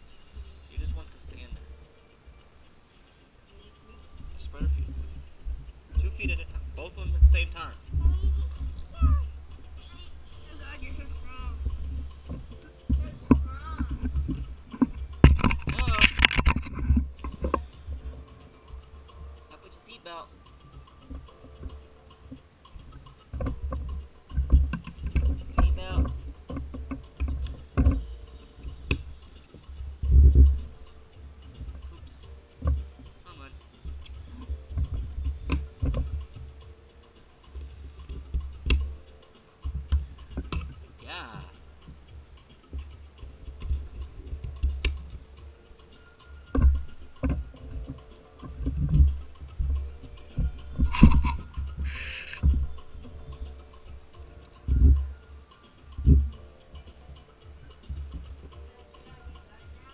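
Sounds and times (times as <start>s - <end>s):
low thuds and knocks: 4.2s - 18.2s
camera handling thumps and rumbling: 11.6s - 17.6s, 48.6s - 52.8s.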